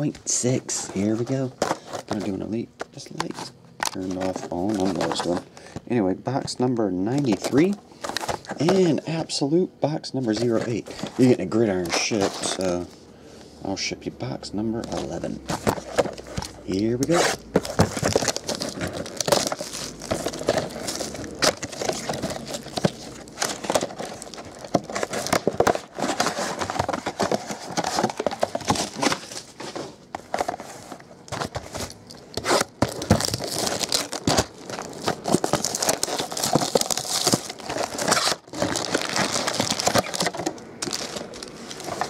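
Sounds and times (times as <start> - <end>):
plastic wrap crinkling: 14.8 - 42.0.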